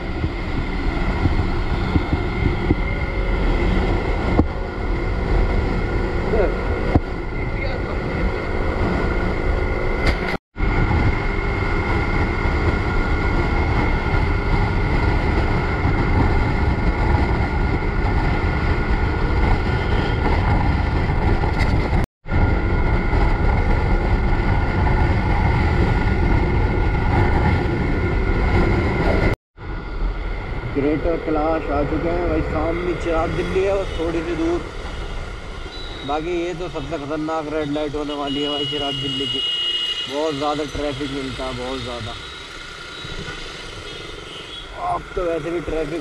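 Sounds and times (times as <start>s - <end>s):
wind rushing over microphone: 0.0s - 35.6s
road noise: 0.0s - 46.0s.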